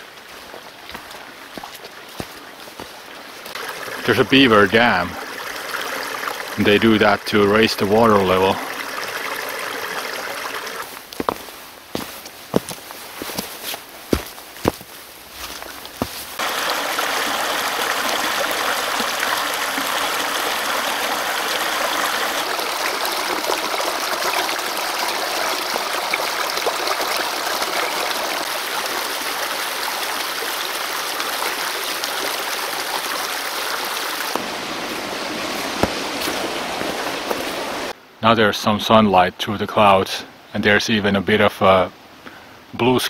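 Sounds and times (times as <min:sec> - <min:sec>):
footstep on trail: 0:00.0 - 0:03.6, 0:10.8 - 0:16.5, 0:34.3 - 0:38.0
brook splashing over rocks: 0:00.0 - 0:13.5, 0:14.1 - 0:38.0.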